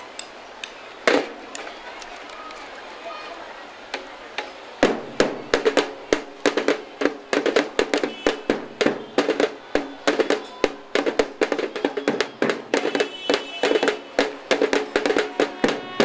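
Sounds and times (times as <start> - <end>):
marching band drums: 1.0 - 1.7, 4.0 - 16.0.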